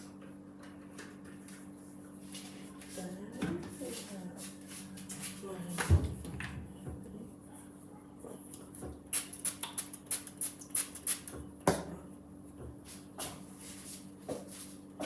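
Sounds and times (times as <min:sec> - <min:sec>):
spray bottle spritzing: 0:09.1 - 0:11.4.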